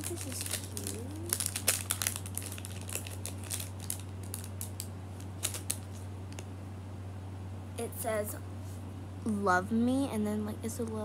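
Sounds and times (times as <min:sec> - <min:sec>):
plastic packaging crinkling: 0:00.0 - 0:06.1
steady low hum: 0:00.0 - 0:11.0.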